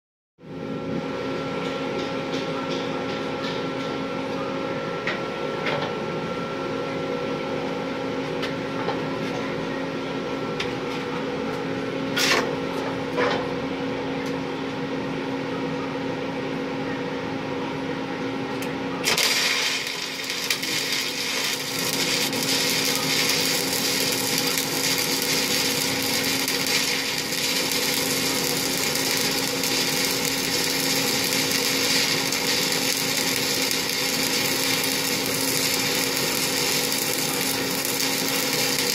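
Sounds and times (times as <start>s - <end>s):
ventilation hum: 0.4s - 38.9s
welding arc crackling and hissing: 19.0s - 38.9s.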